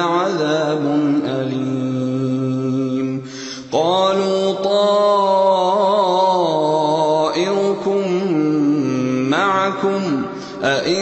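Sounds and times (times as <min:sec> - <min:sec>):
man reciting melodically: 0:00.0 - 0:11.0.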